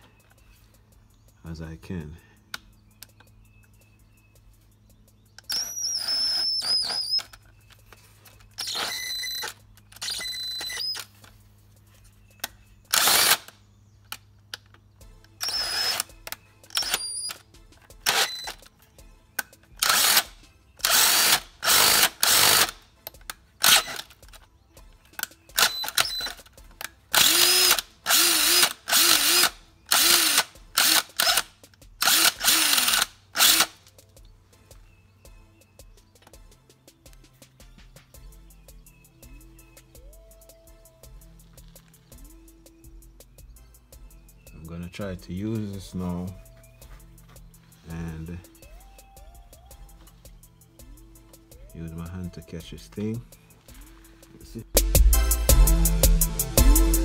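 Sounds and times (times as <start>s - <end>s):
electric drill whining: 5.4s - 7.4s, 8.5s - 11.2s, 12.9s - 13.5s, 15.4s - 17.4s, 18.0s - 18.6s, 19.8s - 22.8s, 23.6s - 24.1s, 25.6s - 26.4s, 27.2s - 33.8s.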